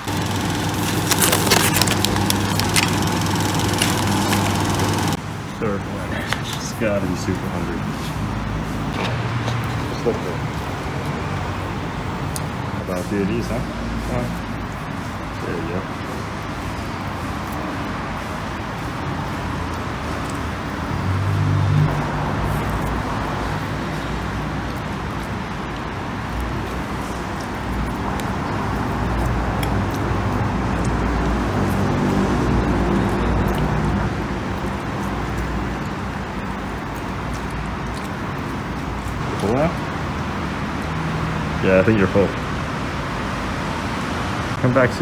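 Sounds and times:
vehicle engine running: 0.0s - 5.2s
road traffic noise: 0.0s - 45.0s.

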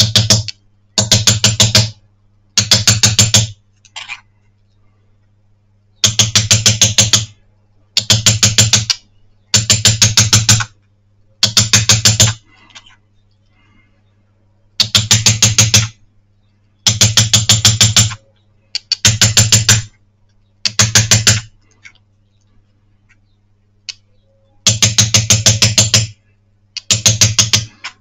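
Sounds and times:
small hammer tapping metal: 0.0s - 2.0s, 2.6s - 3.6s, 6.0s - 7.3s, 8.0s - 10.7s, 14.8s - 16.0s, 16.8s - 18.2s, 20.6s - 21.5s, 24.6s - 26.2s, 26.8s - 28.0s
faint steady hum: 0.0s - 28.0s.

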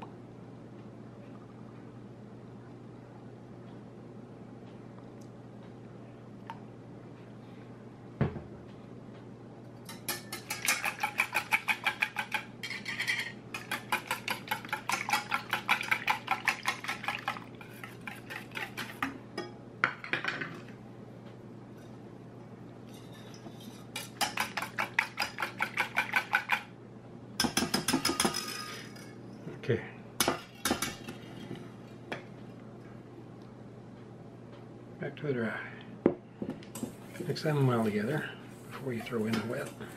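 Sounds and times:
whisk clinking against metal bowl: 9.9s - 19.0s, 24.0s - 26.6s.

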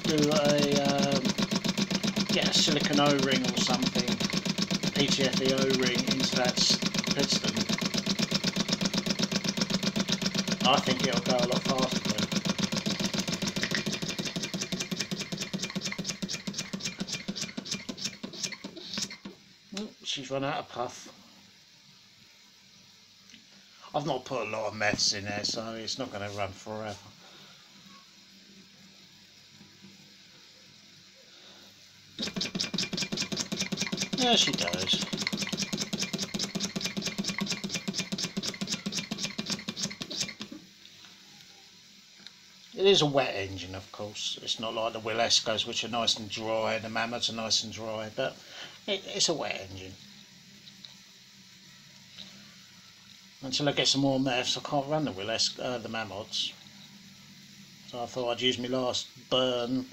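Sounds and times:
model steam engine chuffing: 0.0s - 19.2s, 32.2s - 40.5s.

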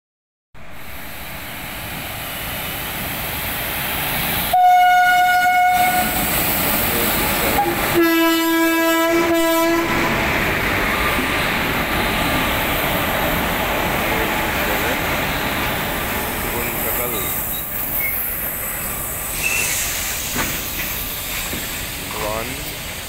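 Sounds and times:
train running on rails: 0.6s - 23.0s
locomotive horn blasts: 4.5s - 6.2s, 7.6s - 10.4s.

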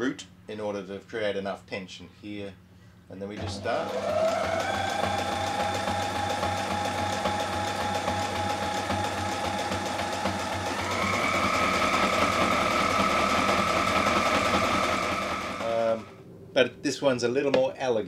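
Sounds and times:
sewing machine running: 3.4s - 16.1s.

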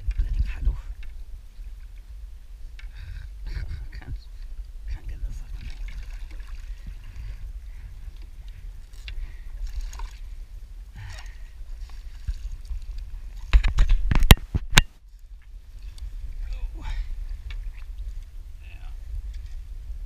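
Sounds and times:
low wind rumble: 0.0s - 20.0s
water splashing against kayak: 5.3s - 14.3s.

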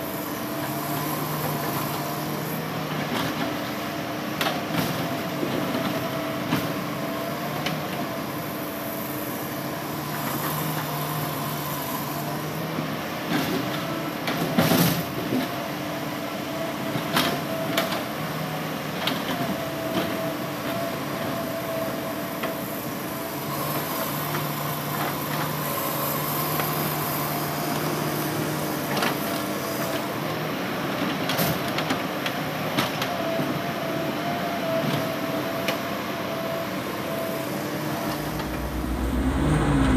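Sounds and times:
hydraulic whine: 36.2s - 39.9s
diesel engine running: 36.9s - 39.9s.

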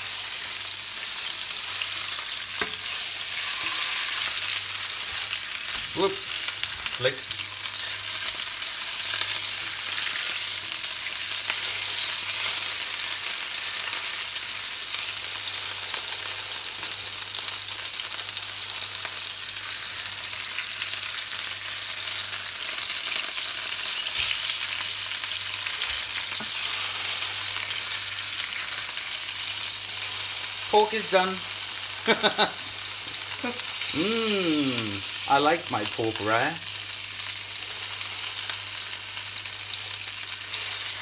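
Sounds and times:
meat sizzling in hot oil: 0.0s - 41.0s.

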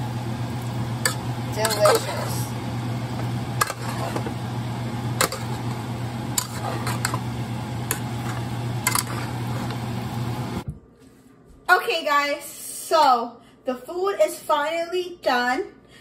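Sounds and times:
low hum: 0.0s - 10.8s
spatula scraping a pot: 1.0s - 2.5s, 3.6s - 4.4s, 5.2s - 9.8s.

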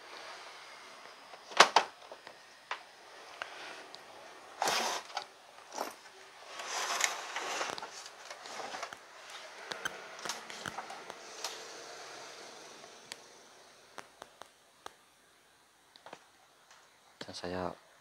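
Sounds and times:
rustling and rubbing: 4.6s - 9.6s.

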